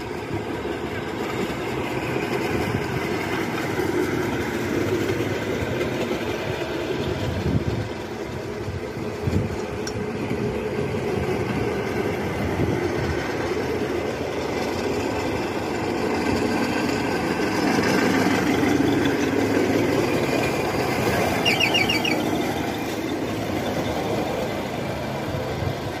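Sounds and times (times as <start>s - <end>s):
rail trolley running on track: 0.0s - 26.0s
high squeaks: 20.6s - 23.9s.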